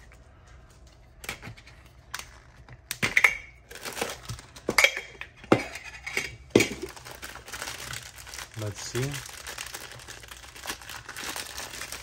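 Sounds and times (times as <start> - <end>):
plastic bag rustling: 3.6 - 4.6, 6.6 - 12.0.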